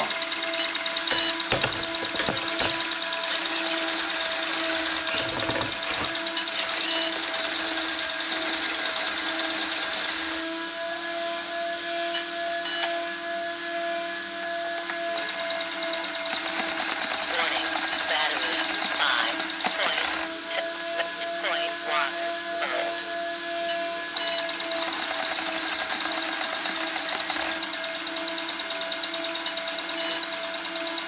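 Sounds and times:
small cooling fan whirring: 0.0s - 8.7s.

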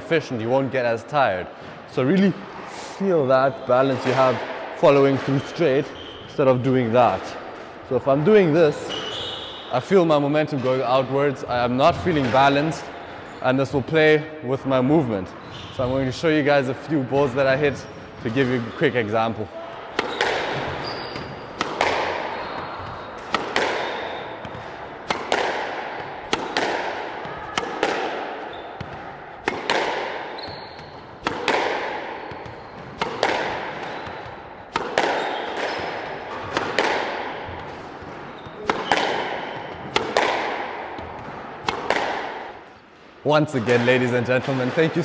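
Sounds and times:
shoes squeaking on wooden floor: 5.2s - 6.4s, 8.8s - 9.7s, 20.0s - 24.8s, 28.4s - 29.0s, 30.3s - 31.3s, 32.3s - 34.5s, 35.2s - 36.6s, 37.4s - 39.9s
squash ball cracks: 19.7s - 42.9s.

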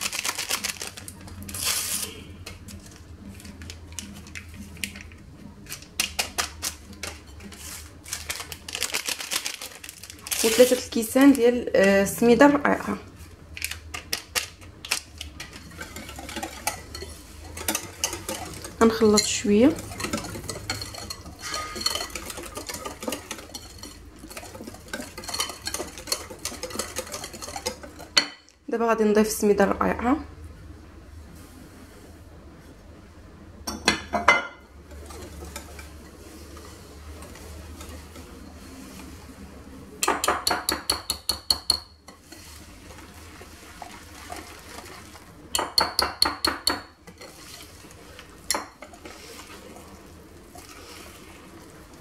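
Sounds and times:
paper sachets crinkling: 0.0s - 11.5s
low steady hum: 0.0s - 52.0s
whisk scraping glass bowl: 15.3s - 28.4s, 34.8s - 39.4s, 40.2s - 51.6s.

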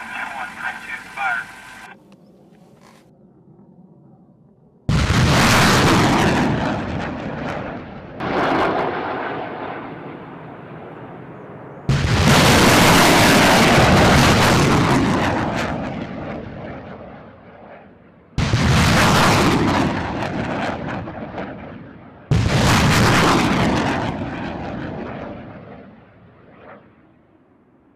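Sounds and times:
rocket launch blasts: 4.9s - 10.6s, 11.9s - 16.7s, 18.4s - 25.6s.

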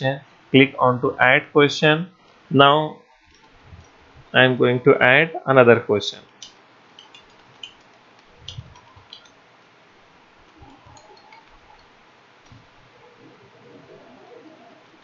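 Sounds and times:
typing on keyboard: 7.0s - 9.3s, 10.5s - 12.6s.

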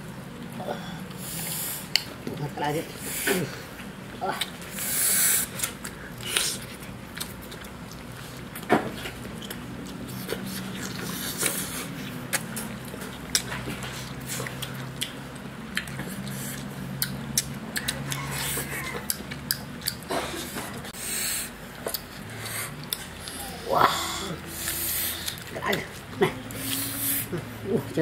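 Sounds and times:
low steady hum: 0.0s - 28.0s
wet chewing and lip-smacking: 3.1s - 27.5s
meat tearing: 9.1s - 20.0s.

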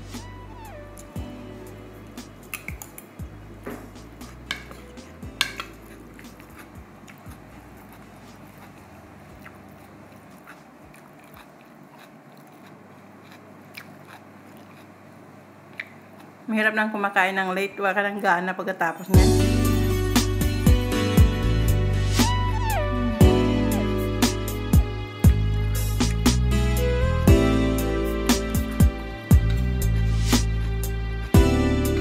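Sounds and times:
chewing crunchy salad: 4.2s - 16.4s.

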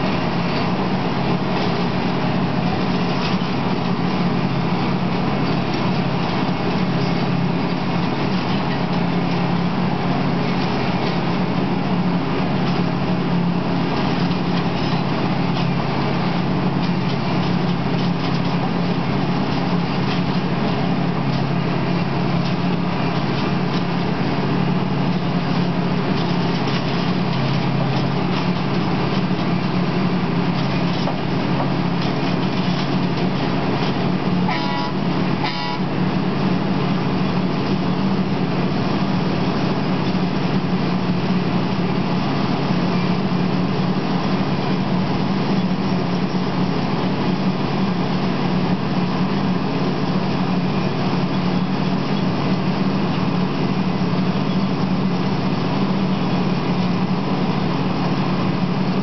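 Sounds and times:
diesel engine running: 0.0s - 59.0s
short two-part horn tone: 34.5s - 35.9s.

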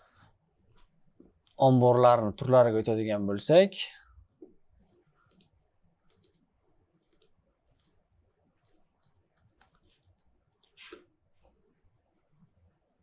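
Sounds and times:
keyboard typing: 1.8s - 2.6s, 5.2s - 6.4s, 7.0s - 11.0s.

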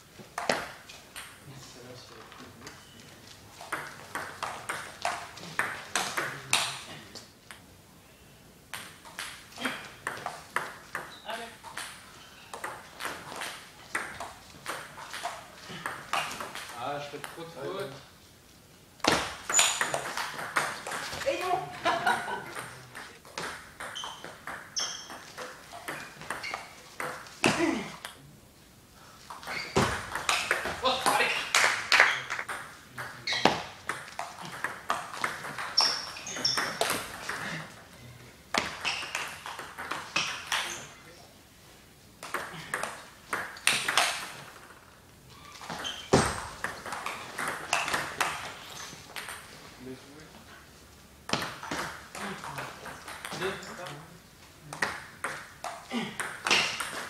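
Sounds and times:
table tennis balls clicking: 0.2s - 1.4s, 3.5s - 7.6s, 8.7s - 17.4s, 19.0s - 21.5s, 22.2s - 28.2s, 29.3s - 37.9s, 38.5s - 41.0s, 42.2s - 49.6s, 51.2s - 54.0s, 54.6s - 57.0s
ping pong ball clicking: 42.2s - 44.4s.

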